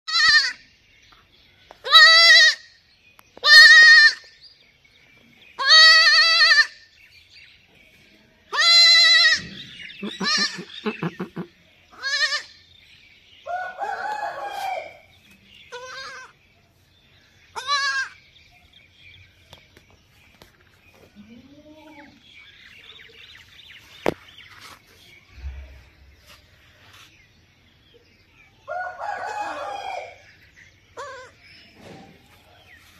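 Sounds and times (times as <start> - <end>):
baby goat bleating: 0.1 - 0.6, 1.8 - 2.7, 3.4 - 4.3, 5.6 - 6.9, 8.5 - 12.6, 15.7 - 16.4, 17.5 - 18.2, 31.0 - 31.4.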